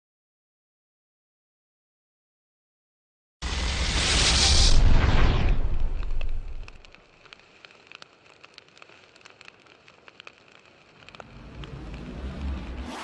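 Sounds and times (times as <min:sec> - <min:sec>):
loud boom: 0:03.4 - 0:06.8
low rumble: 0:03.4 - 0:07.0, 0:11.0 - 0:12.9
fire crackling: 0:03.4 - 0:13.0.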